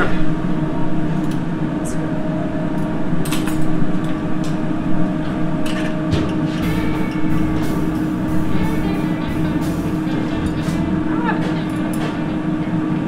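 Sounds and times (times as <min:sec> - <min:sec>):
kitchen equipment hum: 0:02.8 - 0:13.0.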